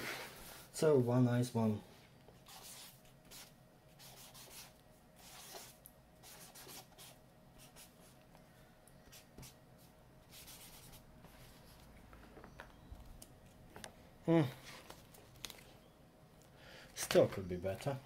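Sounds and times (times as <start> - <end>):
marker scratching on paper: 2.4 - 8.2, 9.1 - 11.0.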